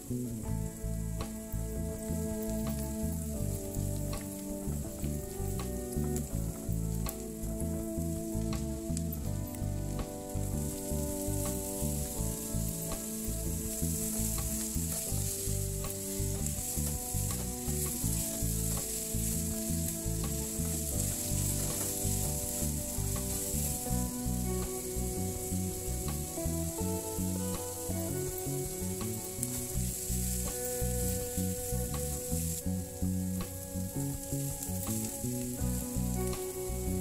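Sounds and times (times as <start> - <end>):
vegetables sizzling in oil: 8.2 - 37.0.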